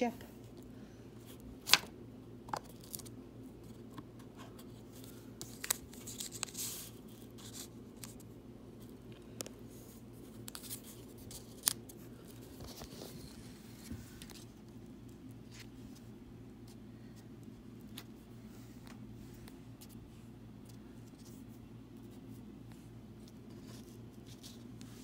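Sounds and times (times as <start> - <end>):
faint low hum: 0.0 - 25.0
paper rustling: 3.7 - 8.2, 9.8 - 14.6.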